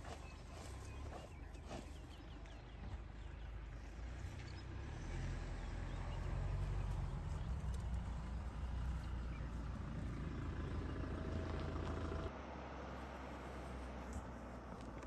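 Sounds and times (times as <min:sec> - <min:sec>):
feet scraping dry soil: 0:00.0 - 0:02.7
idling vehicle engine rumble: 0:00.0 - 0:15.0.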